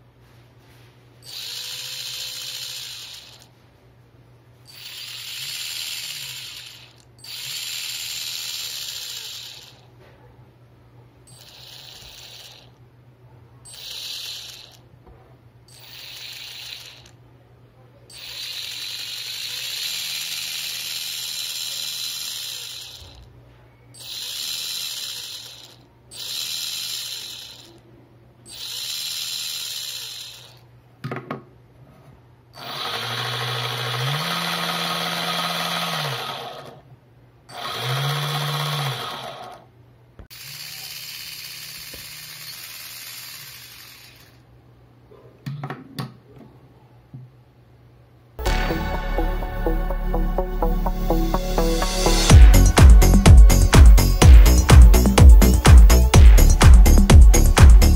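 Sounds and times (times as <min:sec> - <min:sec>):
electric motor and gearbox whine: 0:01.2 - 0:03.5, 0:04.7 - 0:09.8, 0:11.3 - 0:12.8, 0:13.7 - 0:14.8, 0:15.7 - 0:17.1, 0:18.1 - 0:23.3, 0:24.0 - 0:27.8, 0:32.6 - 0:36.8, 0:37.5 - 0:39.7, 0:40.3 - 0:44.4, 0:51.0 - 0:57.9.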